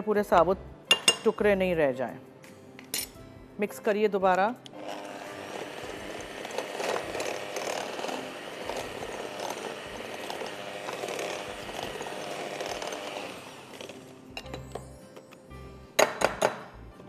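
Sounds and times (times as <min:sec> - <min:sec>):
electric hand mixer running: 0:04.7 - 0:14.2.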